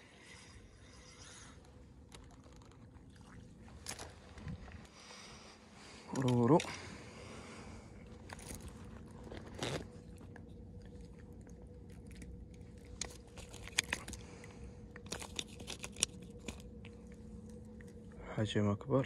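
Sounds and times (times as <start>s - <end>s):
faint steady hum: 0.0s - 19.0s
clicks and crunches on pebbles: 8.1s - 18.0s.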